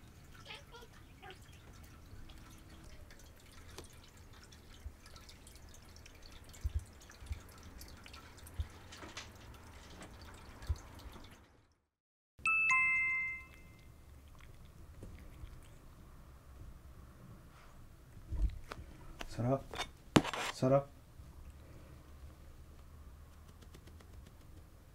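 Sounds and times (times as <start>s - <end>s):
bright chime: 12.4s - 13.8s.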